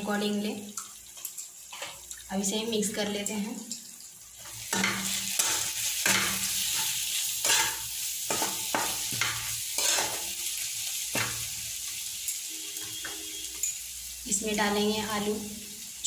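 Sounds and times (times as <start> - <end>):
food sizzling in oil: 0.0 - 16.0
metal spoon scraping a pan: 1.2 - 2.0, 4.4 - 13.9.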